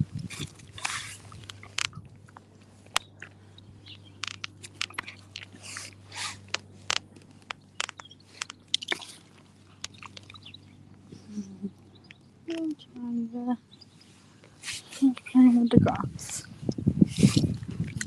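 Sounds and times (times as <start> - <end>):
dog chewing grass: 0.0 - 11.2.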